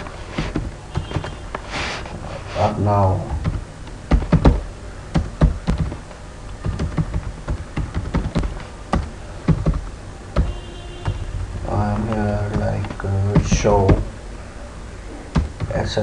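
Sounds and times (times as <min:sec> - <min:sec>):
computer keyboard typing: 0:03.4 - 0:11.2, 0:15.3 - 0:15.9.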